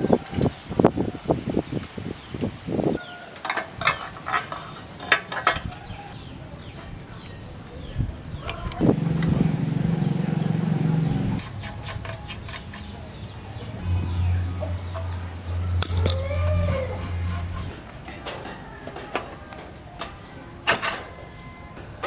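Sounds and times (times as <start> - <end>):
steady low hum: 7.9 - 18.1.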